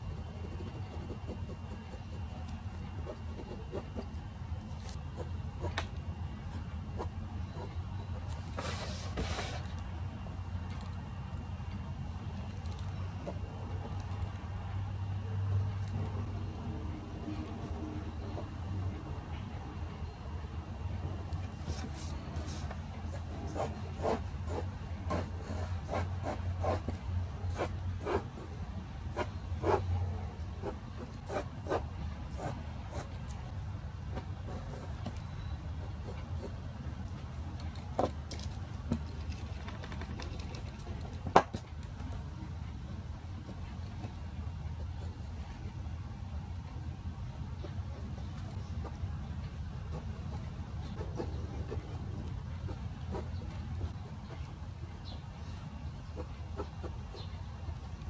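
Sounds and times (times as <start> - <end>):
pen scratching on paper: 0.0 - 5.7, 21.5 - 33.3, 49.9 - 54.4.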